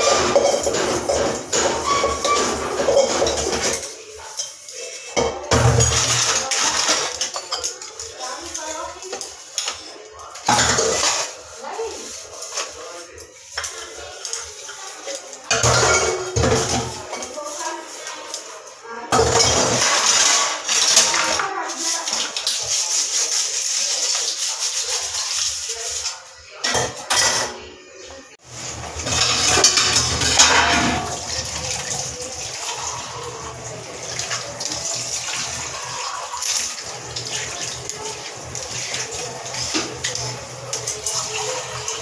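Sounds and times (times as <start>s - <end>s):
water running and splashing in sink: 0.0s - 27.6s, 28.4s - 42.0s
dishes being washed: 0.0s - 42.0s
counter being wiped: 16.9s - 18.8s.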